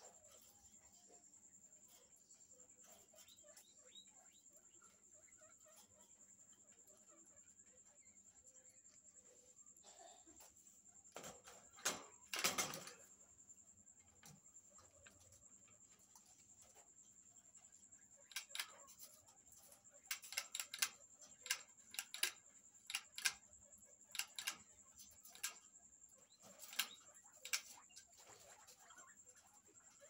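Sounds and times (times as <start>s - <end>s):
guinea pig clicks and taps: 18.2s - 30.0s.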